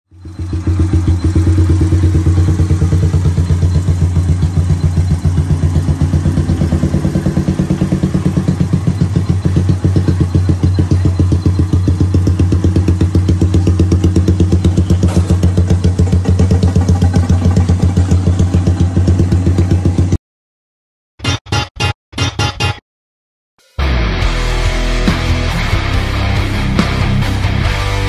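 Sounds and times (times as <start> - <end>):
motorcycle engine idling: 0.1 - 20.2.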